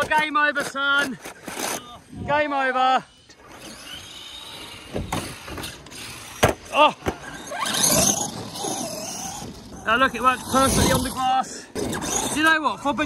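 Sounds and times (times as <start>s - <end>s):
electric motor whine: 3.1s - 12.4s
tyres squealing: 3.3s - 13.0s.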